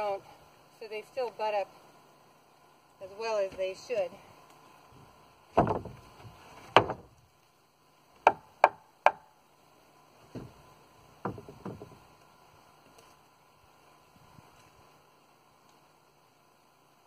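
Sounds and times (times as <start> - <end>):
soft knocks: 11.2 - 12.0.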